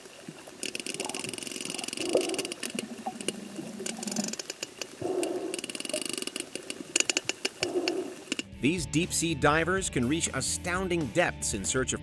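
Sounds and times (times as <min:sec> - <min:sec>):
whale clicks and buzzing runs: 0:00.0 - 0:08.5
whale squeaks and whines: 0:01.0 - 0:04.4.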